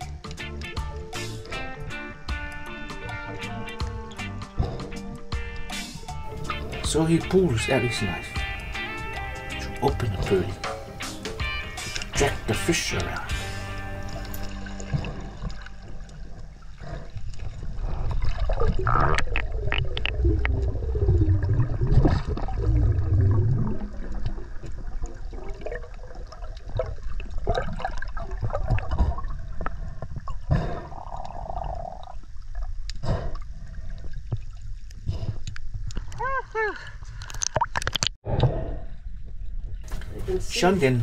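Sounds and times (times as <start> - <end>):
underwater clicks: 0.0 - 7.5, 9.7 - 21.2, 32.8 - 36.3, 37.1 - 38.6
water sloshing underwater: 9.7 - 41.0.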